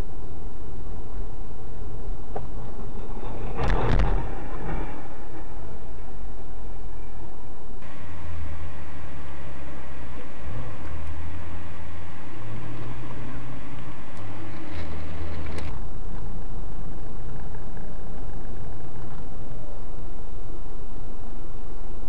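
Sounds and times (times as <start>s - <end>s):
car engine drone: 0.0s - 22.0s
road and wind noise: 0.0s - 22.0s
steady hiss and low hum: 0.0s - 22.0s.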